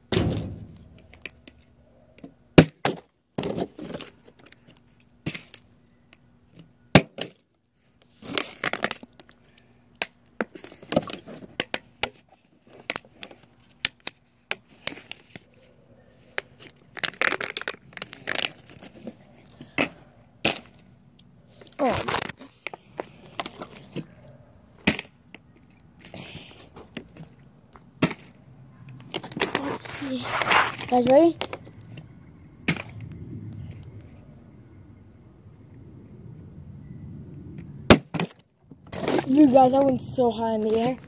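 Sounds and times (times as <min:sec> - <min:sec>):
plastic bottle crinkling: 0:16.6 - 0:19.2.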